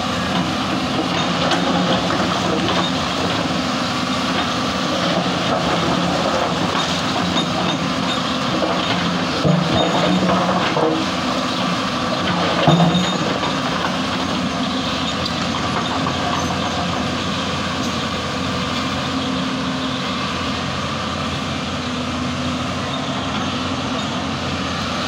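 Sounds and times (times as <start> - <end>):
track clatter: 0.0 - 20.6
excavator diesel engine running: 0.0 - 25.0.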